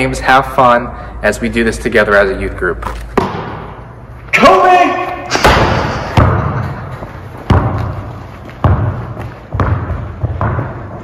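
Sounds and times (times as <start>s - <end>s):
basketball bouncing on gym floor: 3.2s - 3.7s, 5.4s - 11.0s.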